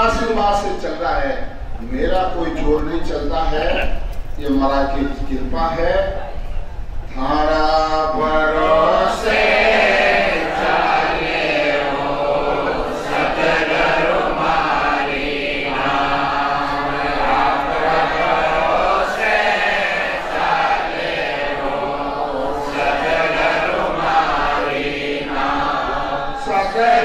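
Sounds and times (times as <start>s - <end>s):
voices chanting together: 8.0s - 27.0s.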